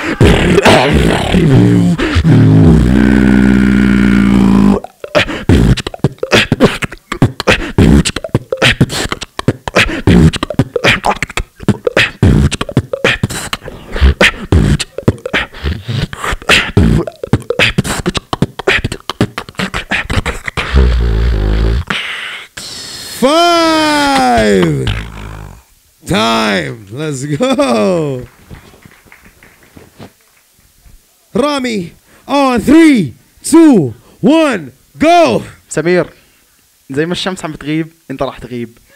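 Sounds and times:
beatboxing through microphone: 0.0 - 23.2, 24.0 - 25.7.

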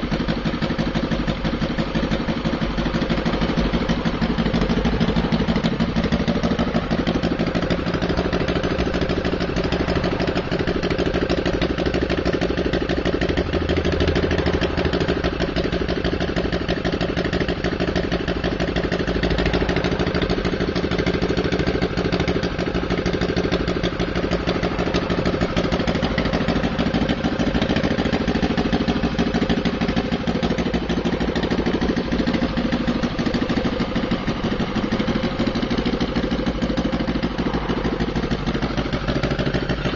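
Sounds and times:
model aircraft engine running: 21.7 - 38.2.

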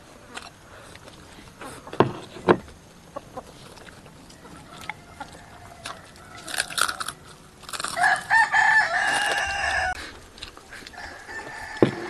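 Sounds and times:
rooster crowing: 4.3 - 7.2, 7.8 - 10.0, 10.9 - 12.0.

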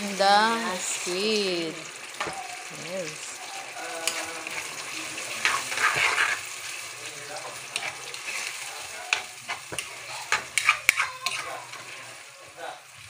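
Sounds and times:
food sizzling: 0.0 - 13.0
metal ladle scraping a wok: 4.0 - 6.8, 7.7 - 12.3.

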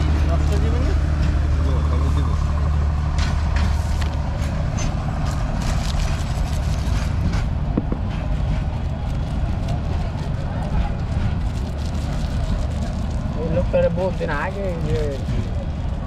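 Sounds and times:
vehicle engine humming: 0.0 - 16.0
plastic bag crackling: 3.7 - 7.2, 9.0 - 15.9.

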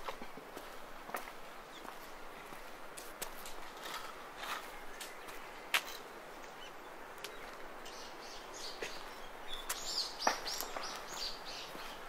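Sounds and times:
footsteps crunching: 0.0 - 6.1, 8.8 - 12.0
songbird chirping: 0.0 - 12.0.

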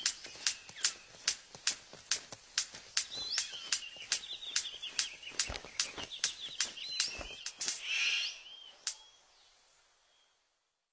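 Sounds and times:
bird sharp clicks: 0.0 - 9.0
bird high warble: 2.9 - 9.3.

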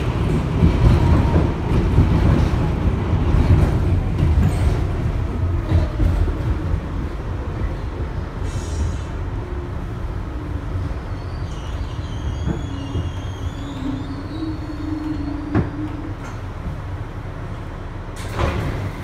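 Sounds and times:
subway car rumbling on track: 0.0 - 19.0
high-pitched wheel squeal: 11.1 - 16.0.

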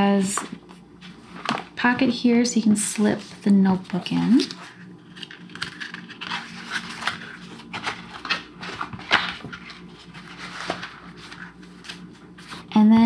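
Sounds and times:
leather and paper rustling: 3.0 - 12.7.

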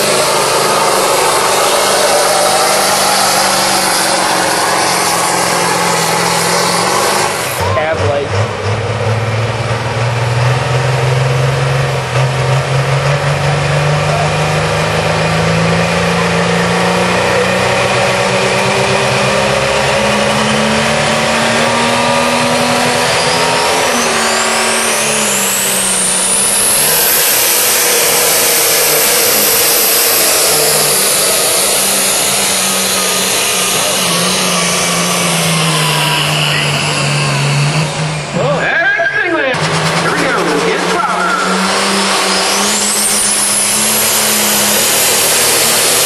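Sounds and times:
diesel truck engine revving: 0.0 - 46.0
turbo whine: 11.0 - 46.0.

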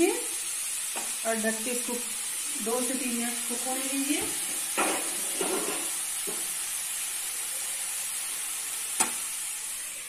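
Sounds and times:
greens sizzling in oil: 0.0 - 10.0
steel spatula scraping pan: 4.8 - 6.0.

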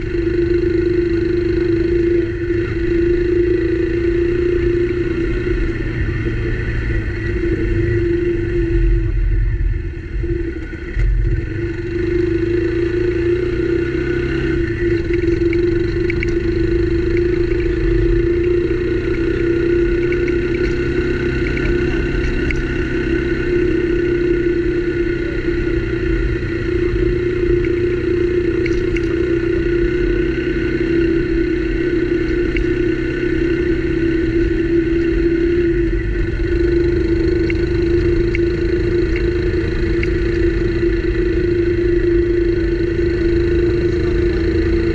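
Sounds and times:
motorcycle engine running: 0.0 - 44.9
road rumble: 0.0 - 44.9
wind: 0.0 - 44.9
faint ticks: 14.7 - 19.4, 20.0 - 22.8, 28.5 - 29.2, 32.2 - 32.8, 36.6 - 41.0.

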